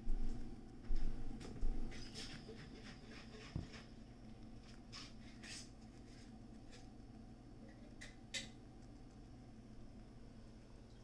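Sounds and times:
steady low hum: 0.0 - 11.0
hamster chewing clicks: 7.6 - 9.4.

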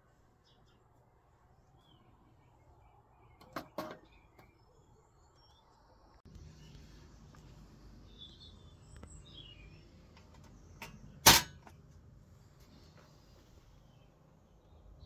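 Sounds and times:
faint bird chirps: 0.0 - 11.2.

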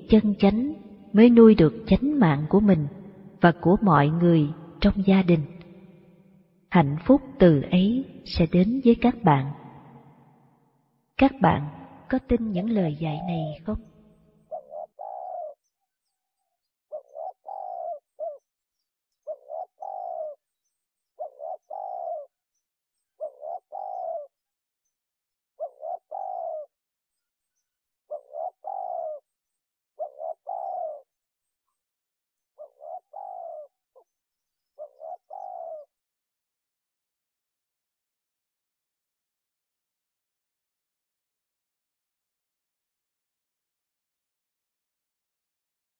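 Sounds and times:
dove cooing: 12.2 - 15.7, 16.9 - 18.5, 19.2 - 20.4, 21.2 - 22.4, 23.2 - 24.4, 25.6 - 26.7, 28.1 - 29.4, 30.0 - 31.2, 32.6 - 34.1, 34.7 - 36.0.

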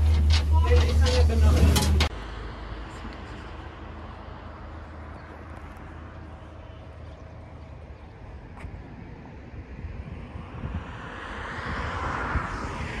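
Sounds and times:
wind buffeting the microphone: 7.3 - 13.0.

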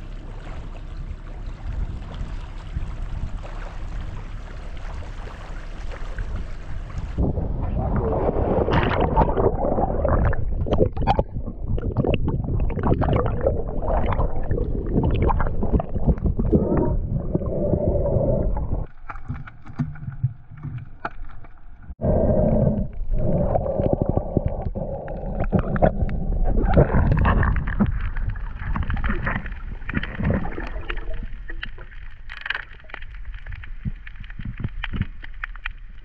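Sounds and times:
underwater rushing and gurgling: 0.0 - 36.0.

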